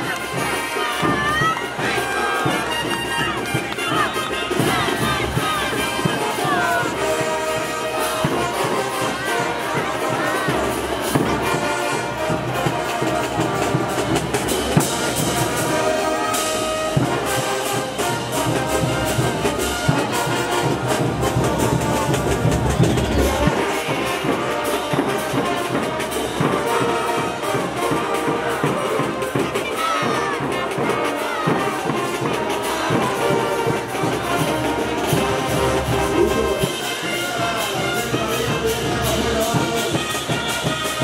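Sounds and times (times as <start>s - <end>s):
drums: 0.0s - 41.0s
trumpets and trombones: 0.0s - 41.0s.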